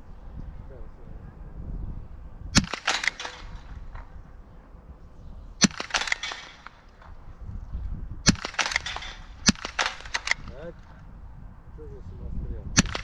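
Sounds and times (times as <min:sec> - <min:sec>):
rifle shots cracking: 0:02.6 - 0:04.2, 0:05.6 - 0:07.3, 0:08.2 - 0:11.0, 0:12.8 - 0:13.0.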